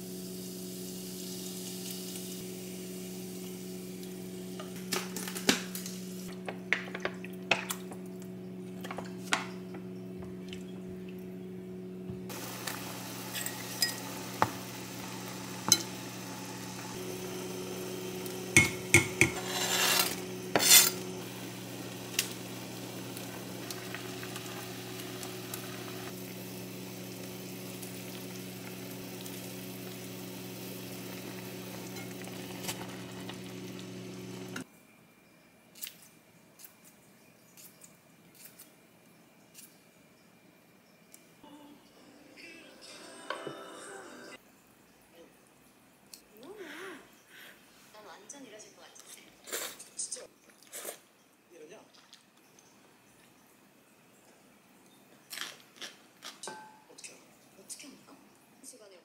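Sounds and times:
food sizzling in pan: 0:00.0 - 0:10.1, 0:12.2 - 0:34.7
low kitchen hum: 0:00.0 - 0:59.0
utensils clinking against pan: 0:13.3 - 0:14.2, 0:18.6 - 0:21.0.

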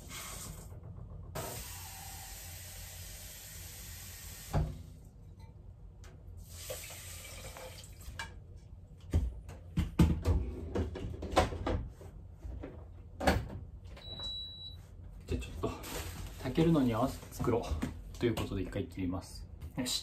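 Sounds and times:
tap water running into bowl: 0:06.6 - 0:08.3.

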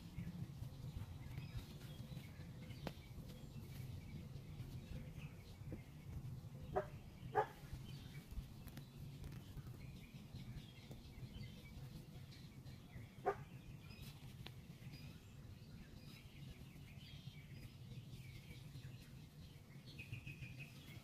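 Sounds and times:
birds chirping faintly: 0:00.0 - 0:21.0
steady low hum: 0:00.0 - 0:21.0
dog bark: 0:06.7 - 0:07.6, 0:13.2 - 0:13.5.

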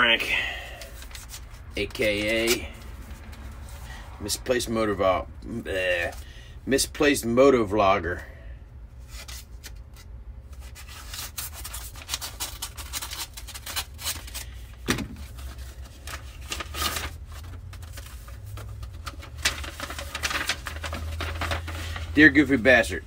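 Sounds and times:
paper rustling and crinkling: 0:00.7 - 0:04.0, 0:09.0 - 0:23.0.

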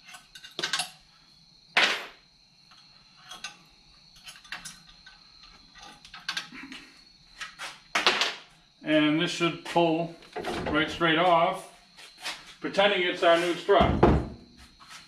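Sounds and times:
metal pins clicking and clinking: 0:00.0 - 0:01.0, 0:02.7 - 0:06.6.

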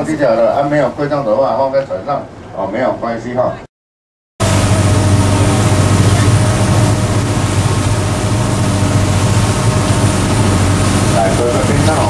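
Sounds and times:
water rushing along hull: 0:00.0 - 0:02.7, 0:04.4 - 0:12.0
ship engine drone: 0:04.4 - 0:12.0.

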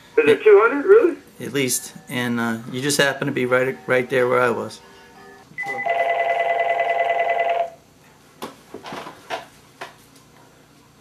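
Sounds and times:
telephone ringing: 0:05.6 - 0:07.8.

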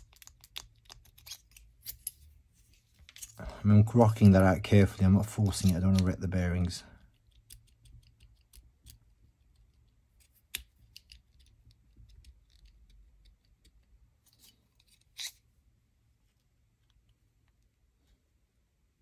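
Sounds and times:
small tools clicking on plastic parts: 0:00.0 - 0:02.2, 0:07.0 - 0:13.9.

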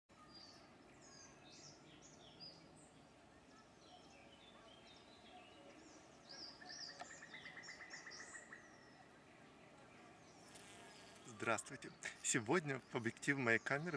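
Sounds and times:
small birds chirping and whistling: 0:00.2 - 0:09.1.

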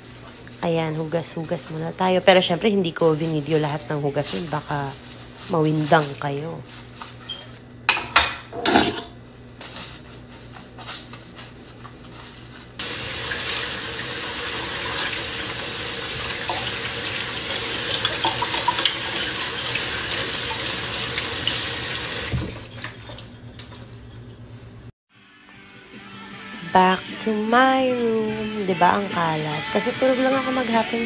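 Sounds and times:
dishes knocking: 0:07.9 - 0:09.2
tap water running: 0:12.8 - 0:24.4.

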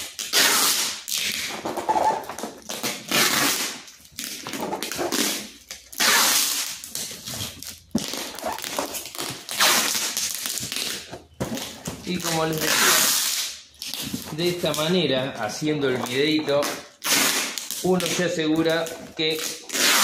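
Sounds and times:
packing tape ripping off roll: 0:00.0 - 0:15.0, 0:15.9 - 0:20.0
cardboard box rustling and bumping: 0:10.6 - 0:12.2.

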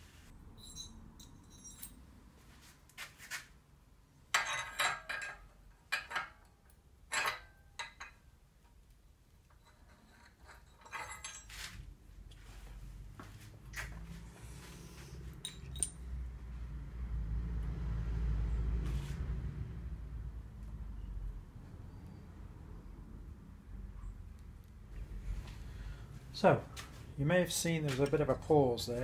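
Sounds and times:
metal parts clinking: 0:00.6 - 0:02.0, 0:04.4 - 0:08.2, 0:09.5 - 0:11.8, 0:15.4 - 0:16.0.

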